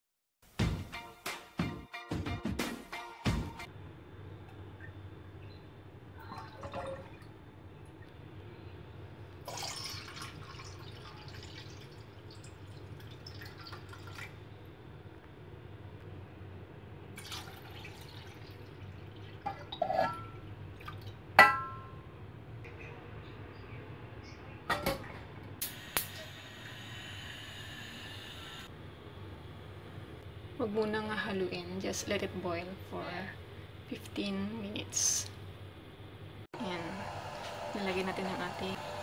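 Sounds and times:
liquid pouring into saucepan: 6.3 - 7.4, 9.4 - 14.4, 17.2 - 19.9.

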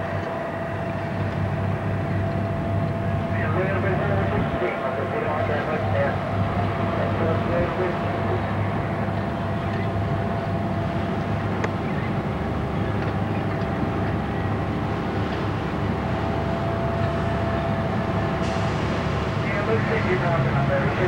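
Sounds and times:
machinery hum: 0.0 - 21.0
thin steady whine: 0.0 - 21.0.

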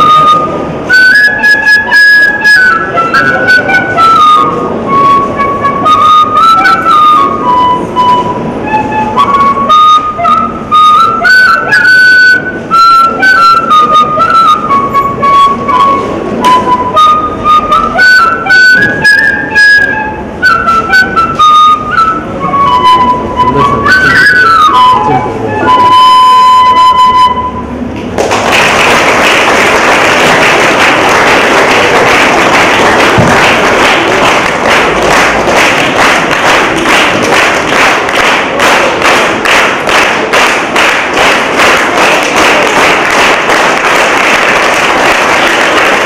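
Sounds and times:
bamboo flute melody: 0.0 - 28.0, 29.3 - 46.0
audience applauding: 28.2 - 46.0.

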